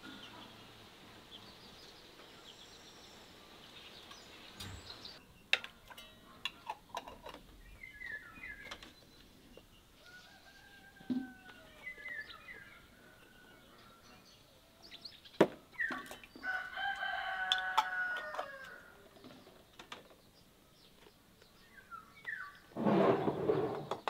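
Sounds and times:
small birds chirping: 0.0s - 24.0s
rooster crowing: 10.0s - 11.9s, 16.4s - 19.0s.

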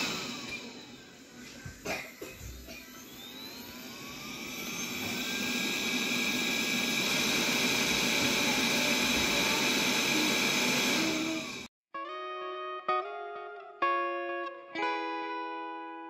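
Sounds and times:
robot vacuum motor whirring: 0.0s - 1.3s, 2.6s - 11.7s.

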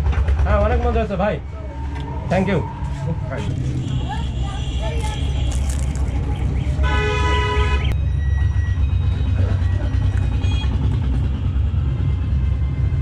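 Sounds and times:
engine rumble: 0.0s - 13.0s
horn sounding: 1.6s - 8.0s.

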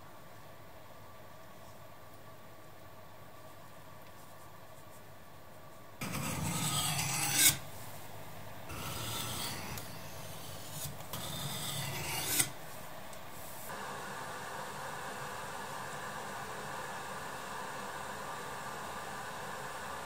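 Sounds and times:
knife scraping on sharpening stone: 6.0s - 7.7s, 8.7s - 12.6s.

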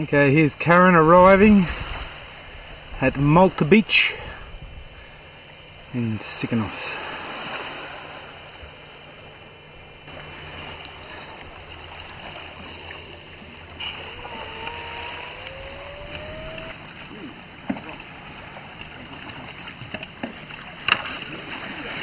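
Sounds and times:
wind noise: 0.0s - 6.0s, 10.1s - 19.0s
faint rising whine: 0.0s - 19.1s
water noise: 0.0s - 22.0s.

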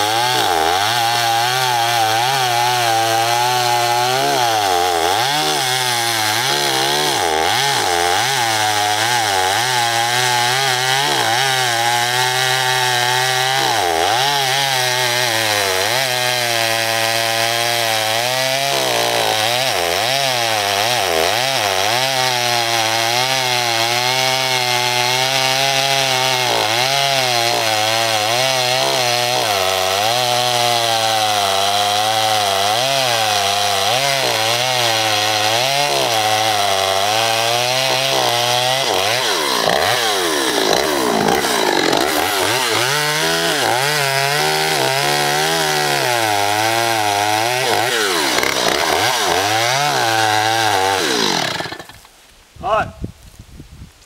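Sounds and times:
chainsaw cutting wood: 0.0s - 52.3s.

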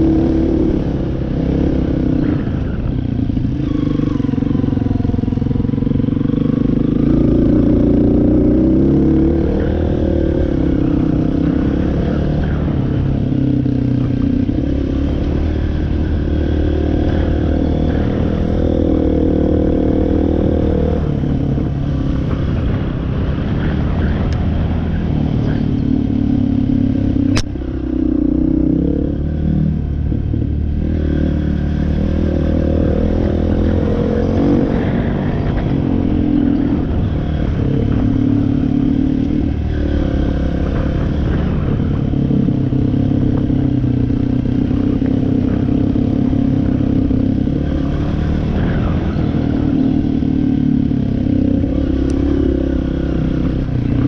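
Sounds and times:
off-road vehicle engine running: 0.0s - 54.0s
sharp click: 27.3s - 27.5s.

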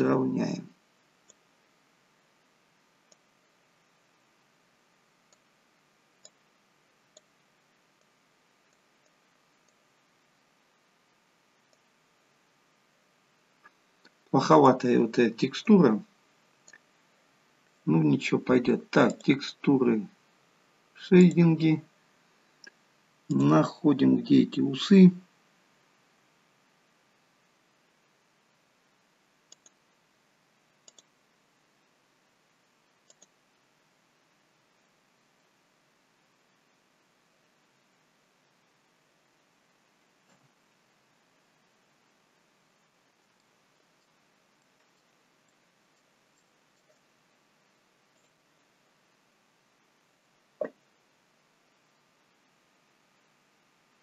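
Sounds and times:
faint steady hiss: 0.0s - 54.0s
computer mouse clicks: 1.2s - 1.4s, 3.0s - 3.3s, 5.3s - 5.5s, 6.2s - 6.4s, 7.1s - 7.4s, 8.0s - 9.8s, 11.7s - 11.9s, 16.6s - 16.9s, 19.0s - 19.4s, 29.5s - 29.8s, 30.8s - 31.2s, 33.0s - 33.4s, 42.8s - 47.1s, 48.1s - 48.4s.

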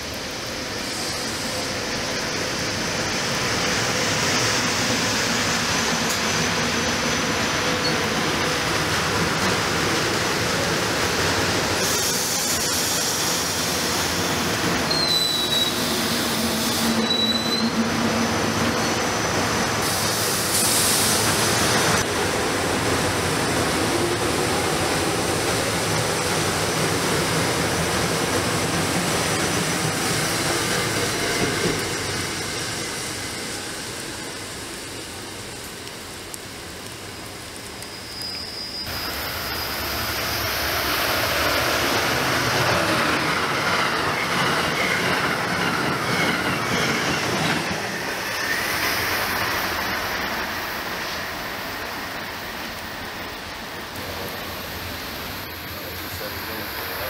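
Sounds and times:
train rumbling on rails: 0.0s - 57.0s
high squeals: 14.9s - 17.8s, 37.8s - 40.3s.

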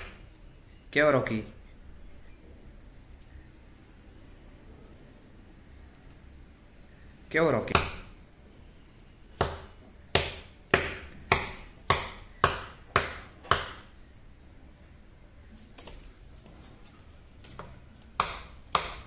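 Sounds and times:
sharp rhythmic clicks: 17.4s - 19.0s.

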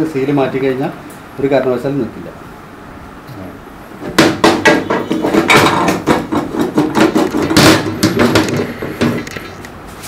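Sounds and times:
metal clanking and knocking: 4.0s - 9.4s.

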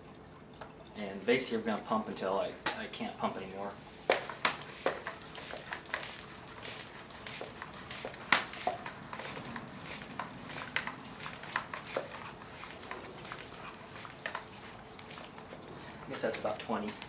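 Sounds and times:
hand air pump hissing: 3.8s - 15.4s
pump clicks: 4.1s - 17.0s.

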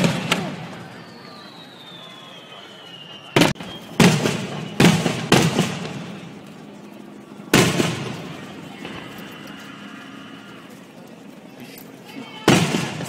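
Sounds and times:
fireworks booming: 0.0s - 6.7s, 7.4s - 9.4s, 12.4s - 13.0s.

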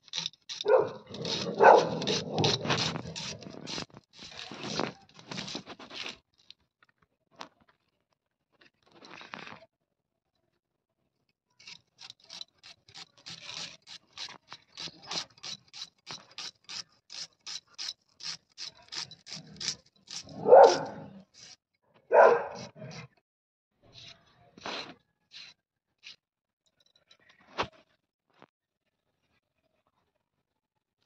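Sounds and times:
blade slicing onion: 0.0s - 6.1s, 11.6s - 21.6s.

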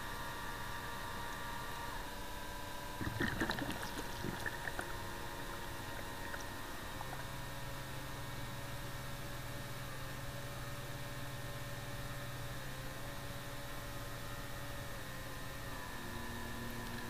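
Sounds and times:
electric motor whine underwater: 0.0s - 17.0s
lower hum: 2.8s - 9.3s
bubbling and gurgling: 2.9s - 7.8s.

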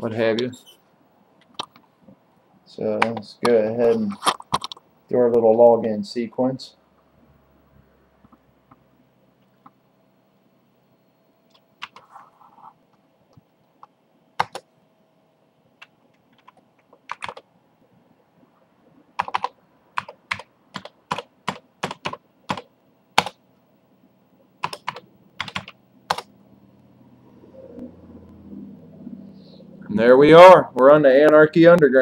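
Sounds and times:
faint steady hum: 0.0s - 32.0s
computer keyboard typing: 14.4s - 14.7s, 15.8s - 17.5s, 19.2s - 23.4s, 24.6s - 26.3s.

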